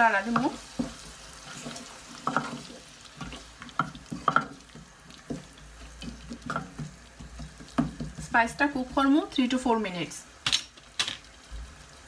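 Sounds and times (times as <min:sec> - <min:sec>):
wooden spatula scraping a pot: 0:00.0 - 0:09.2
soft sizzle of frying: 0:00.0 - 0:12.0.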